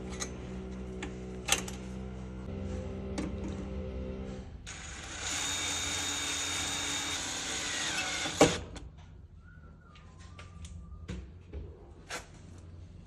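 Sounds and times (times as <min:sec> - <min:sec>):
power drill driving screw: 0:04.7 - 0:08.8.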